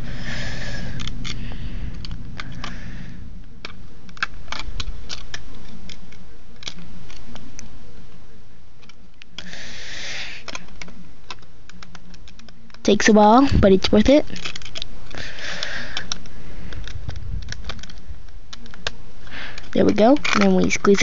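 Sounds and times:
steady low hum: 0:00.0 - 0:21.0
plastic bricks clicking: 0:03.6 - 0:07.6, 0:10.3 - 0:12.9, 0:13.9 - 0:21.0.

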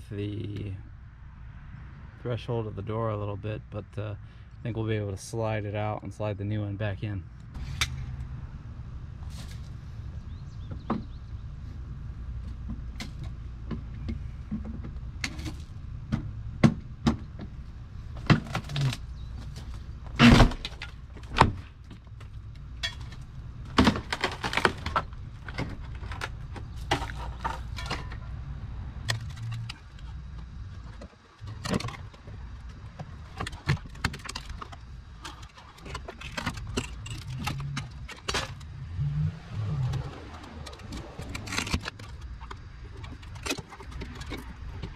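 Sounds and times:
wood and metal knocking and scraping: 0:10.6 - 0:11.2, 0:12.4 - 0:28.4, 0:29.0 - 0:38.8, 0:39.6 - 0:44.9
wood being pried and ripped out: 0:18.2 - 0:22.3, 0:22.9 - 0:27.8, 0:29.0 - 0:44.9.

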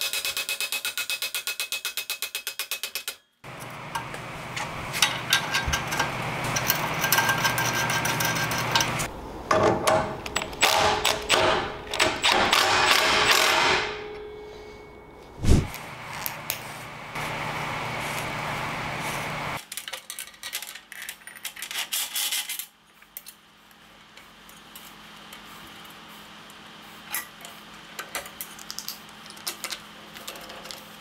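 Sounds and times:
steady hum: 0:13.7 - 0:19.6.

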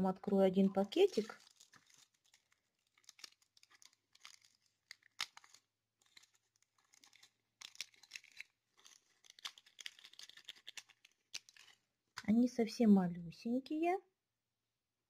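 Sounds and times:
plastic bag crinkling: 0:00.6 - 0:11.9.

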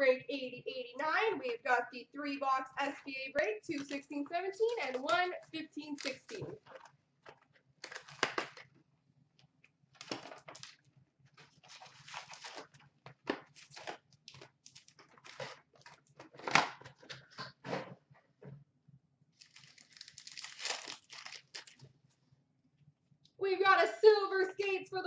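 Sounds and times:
wrappers crinkling and tearing: 0:07.8 - 0:08.7, 0:10.0 - 0:10.8, 0:11.4 - 0:12.9, 0:13.5 - 0:16.0, 0:19.4 - 0:21.8
cardboard and paper rustling: 0:10.0 - 0:17.7, 0:19.4 - 0:21.8.

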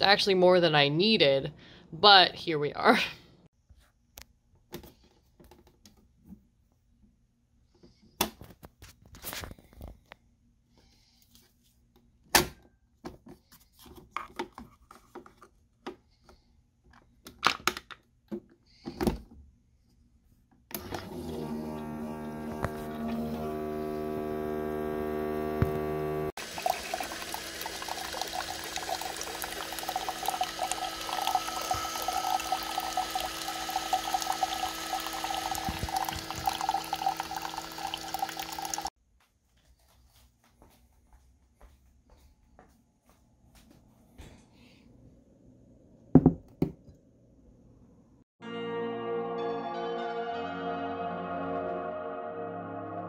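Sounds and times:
coffee maker pump humming: 0:20.8 - 0:38.9
coffee streaming into a mug: 0:26.4 - 0:38.9.

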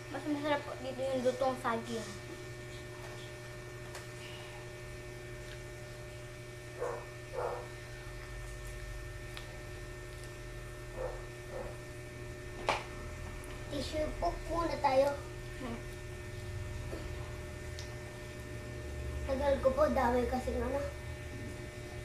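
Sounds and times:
electrical hum: 0:00.0 - 0:22.0
child chewing: 0:05.4 - 0:06.0, 0:06.8 - 0:11.8.

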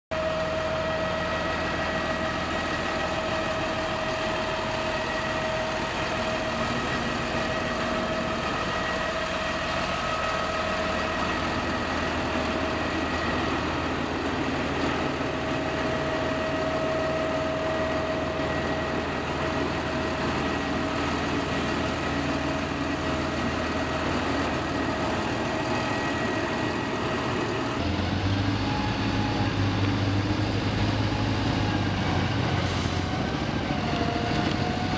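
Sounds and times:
tractor diesel engine idling: 0:00.1 - 0:27.8.

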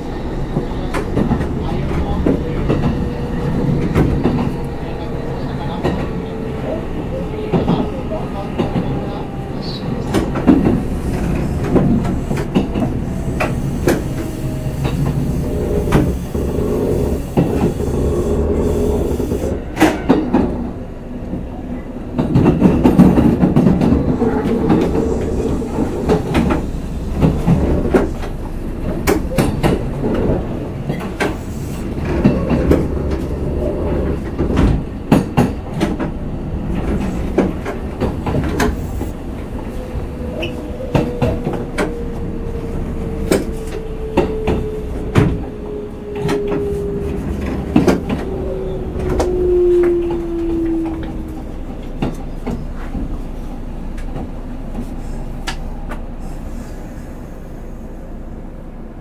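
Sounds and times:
train wheels rumbling: 0:00.0 - 0:59.0
rail-joint clicks: 0:09.8 - 0:21.5, 0:22.1 - 0:56.3.

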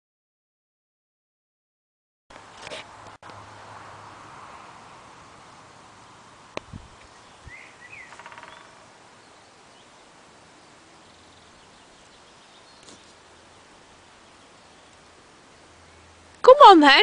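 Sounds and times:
faint steady hiss: 0:02.4 - 0:17.0
birds chirping and trilling: 0:07.0 - 0:16.3.

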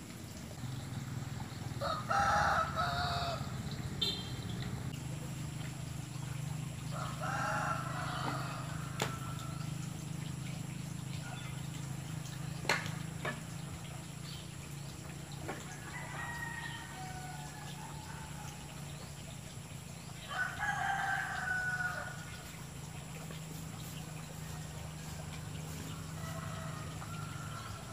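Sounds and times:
rooster crowing: 0:01.8 - 0:03.7, 0:06.9 - 0:09.8, 0:15.7 - 0:18.6, 0:20.2 - 0:22.5, 0:25.0 - 0:27.9.

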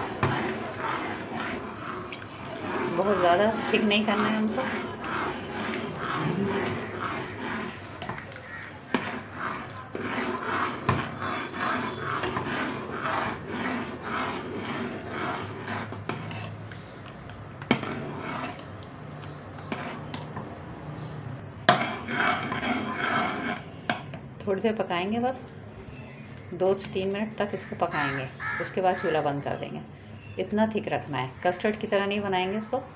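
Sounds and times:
spoon scraping saucepan: 0:00.0 - 0:24.8.

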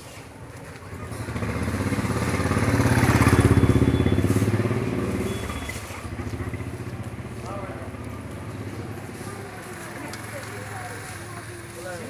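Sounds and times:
motorcycle passing: 0:00.3 - 0:12.0.

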